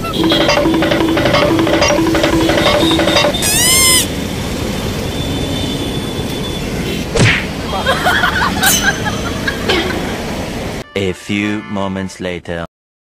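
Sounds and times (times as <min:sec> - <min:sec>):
short pitched tone: 0:00.0 - 0:04.0
street traffic noise: 0:00.0 - 0:10.9.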